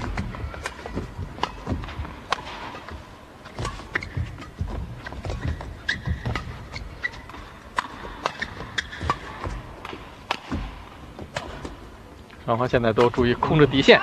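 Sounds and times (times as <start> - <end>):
footsteps thudding on court: 0.0 - 7.5
racket striking shuttlecock: 0.0 - 11.7
shoe squeaks: 2.8 - 9.7.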